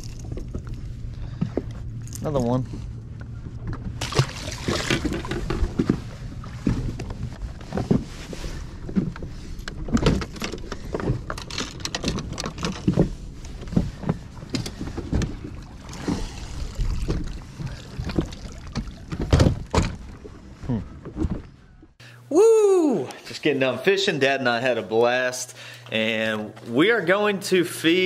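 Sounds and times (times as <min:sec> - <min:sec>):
wind and water rumble: 0:00.0 - 0:22.0
knocks and thumps on boat deck: 0:03.6 - 0:16.3, 0:16.9 - 0:21.6.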